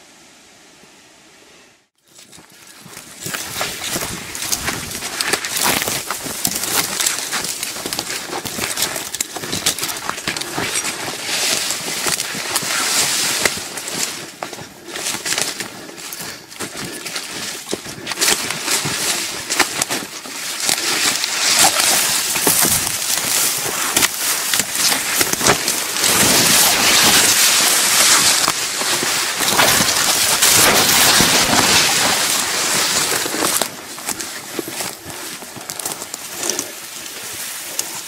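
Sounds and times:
undergrowth swishing against body: 2.1s - 38.0s
footfalls: 17.7s - 36.6s.

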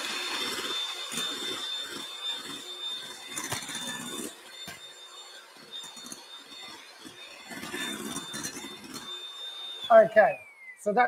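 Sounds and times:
electric hand mixer whining: 0.0s - 11.0s.

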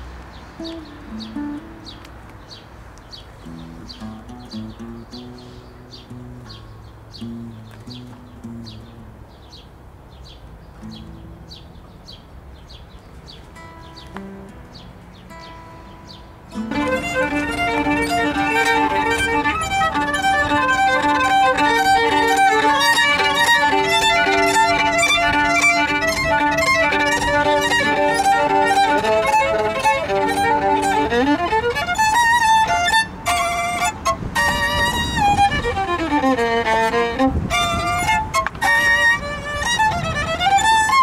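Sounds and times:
solo violin melody: 0.6s - 2.1s, 16.5s - 41.0s.

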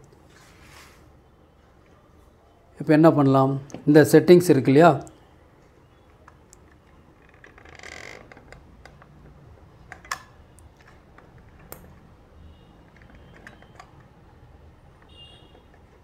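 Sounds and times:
soft rustle: 0.2s - 1.2s.

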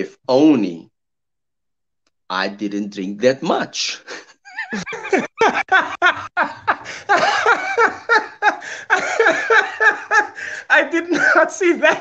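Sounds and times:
men laughing hard: 4.1s - 12.0s.

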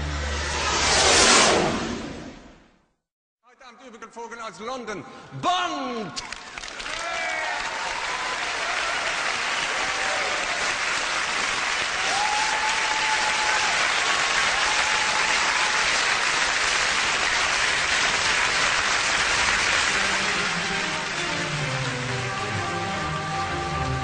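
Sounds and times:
crowd applauding: 6.2s - 24.0s.

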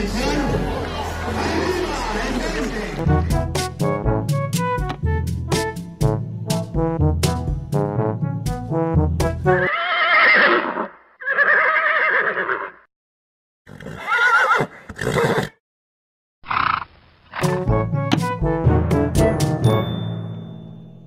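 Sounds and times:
brass music tune: 3.0s - 9.7s, 17.4s - 20.0s
horse neighing: 9.7s - 12.9s, 13.7s - 15.6s, 16.4s - 17.6s.

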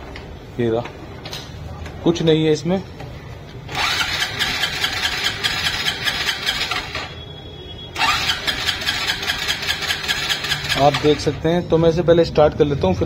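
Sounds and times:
motorcycle engine cranking: 3.7s - 7.1s, 8.0s - 11.4s.

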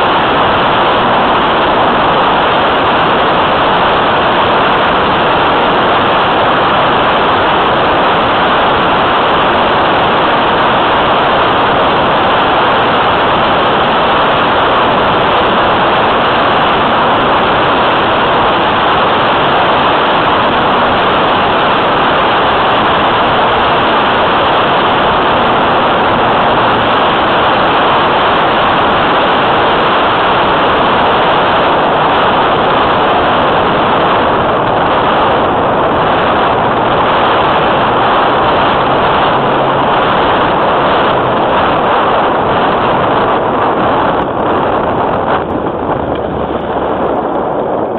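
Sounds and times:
airflow rushing hiss: 0.0s - 47.9s.

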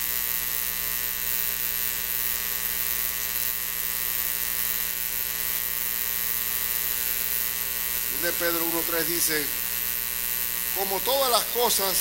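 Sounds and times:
electrical buzz with hiss: 0.0s - 12.0s.

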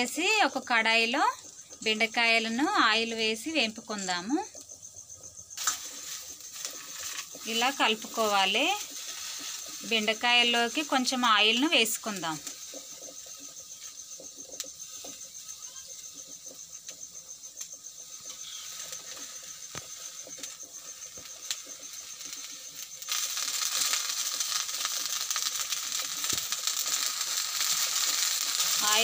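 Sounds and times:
okra sizzling in oil: 0.0s - 29.0s
metal spoon scraping a pan: 5.6s - 11.0s.

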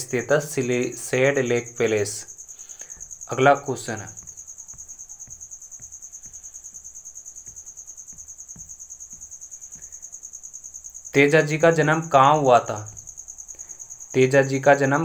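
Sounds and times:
man speaking: 0.0s - 2.3s, 3.3s - 4.2s, 11.1s - 13.0s, 14.2s - 15.0s
high-pitched insect trill: 0.0s - 15.0s
faint low taps: 4.0s - 10.2s.

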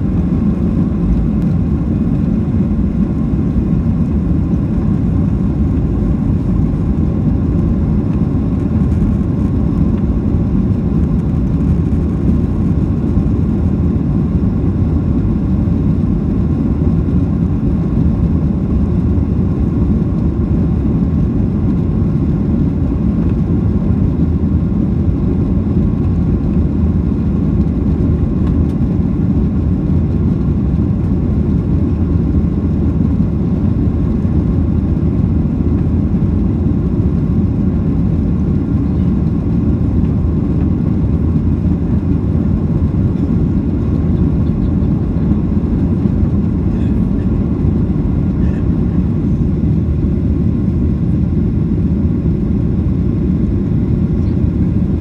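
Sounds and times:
jet engines and rushing air: 0.0s - 55.0s.

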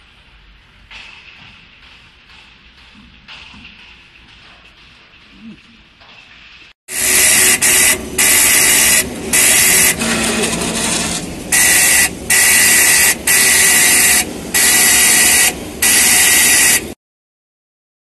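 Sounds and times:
marking machine stylus buzzing: 6.9s - 17.0s.

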